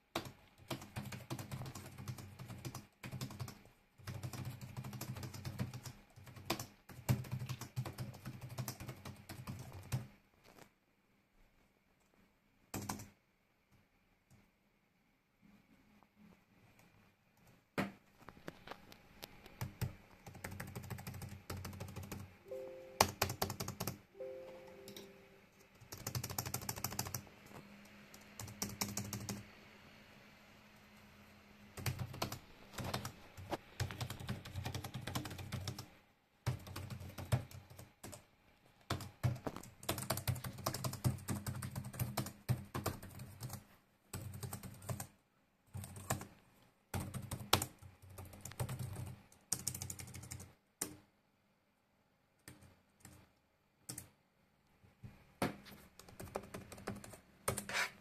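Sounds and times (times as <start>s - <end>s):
laptop keys clicking: 0.1s - 10.1s, 12.7s - 13.2s, 19.4s - 22.3s, 23.0s - 24.0s, 25.8s - 27.3s, 28.1s - 29.5s, 31.8s - 35.9s, 36.5s - 38.2s, 38.9s - 43.6s, 45.7s - 46.3s, 46.9s - 51.0s, 52.4s - 54.1s, 56.0s - 57.7s.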